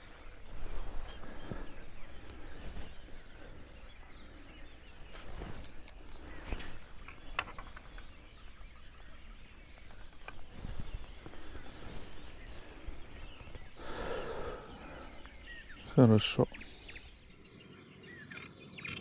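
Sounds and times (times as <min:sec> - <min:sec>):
faint bird chirps: 0:00.0 - 0:19.0
fishing rods knocking and clicking: 0:07.0 - 0:08.1.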